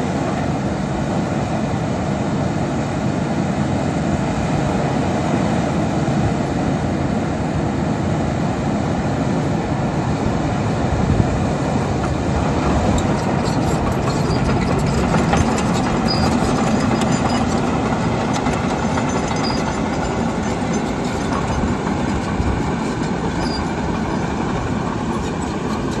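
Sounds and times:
diesel engine running: 6.2 - 26.0
steel tracks clanking and squeaking: 11.2 - 26.0.

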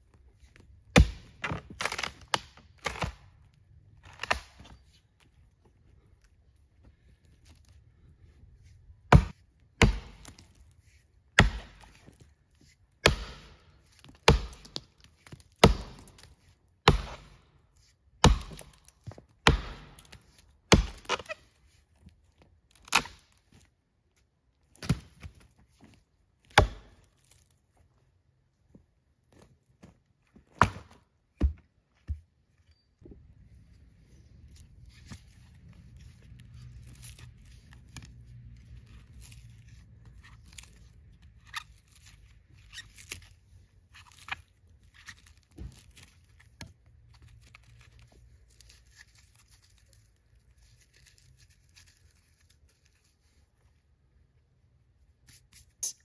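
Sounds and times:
axe chopping dead tree trunk: 0.9 - 3.2, 4.0 - 4.8, 9.1 - 10.5, 11.3 - 12.2, 13.0 - 17.4, 18.2 - 21.3, 22.8 - 23.4, 24.7 - 25.4, 26.4 - 27.1, 30.5 - 31.6.

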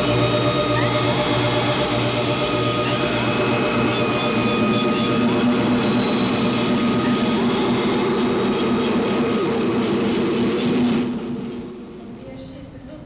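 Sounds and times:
ambient droning score: 0.0 - 12.3.

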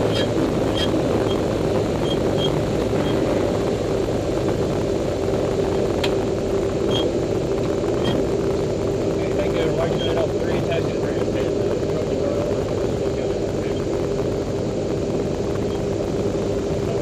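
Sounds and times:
aircraft engine and propeller: 0.0 - 17.0.

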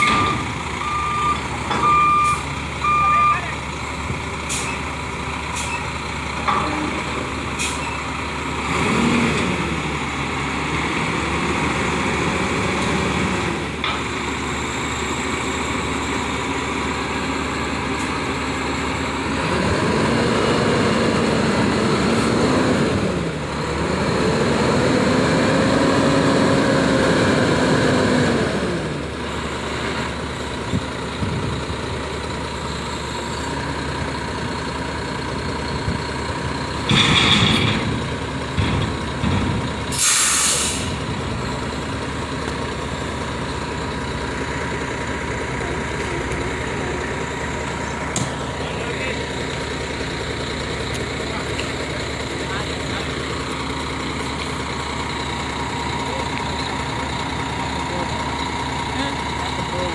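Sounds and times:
diesel truck engine revving: 0.0 - 59.9.

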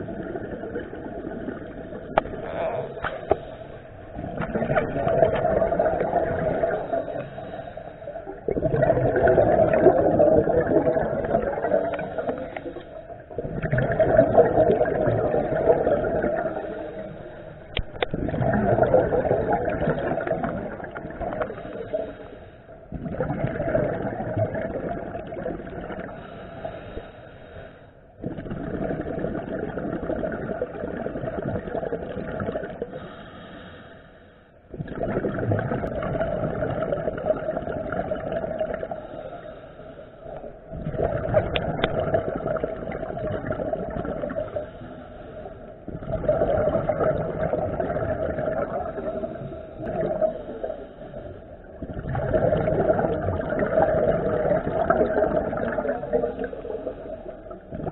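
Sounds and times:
underwater regulator breathing bubbles: 0.0 - 27.1.

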